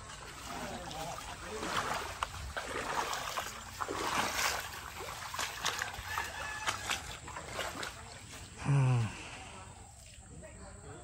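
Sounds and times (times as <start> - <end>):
footsteps splashing through water: 0.0 - 8.6.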